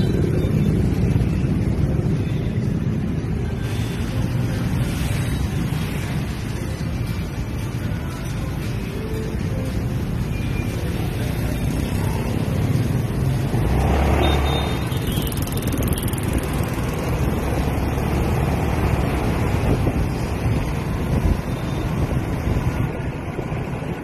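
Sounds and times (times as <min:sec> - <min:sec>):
city street traffic: 0:00.0 - 0:24.0
motor scooter engine: 0:14.2 - 0:18.1.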